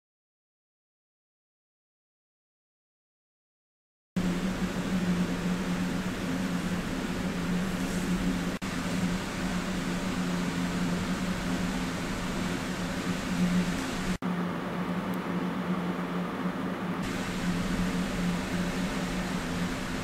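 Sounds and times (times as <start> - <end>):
mechanical hum with hiss: 4.2 - 20.0.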